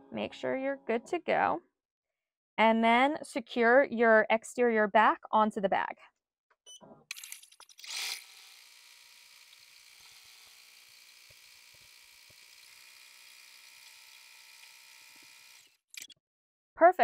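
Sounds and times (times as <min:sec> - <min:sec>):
embroidery machine whirring: 0:07.8 - 0:15.8.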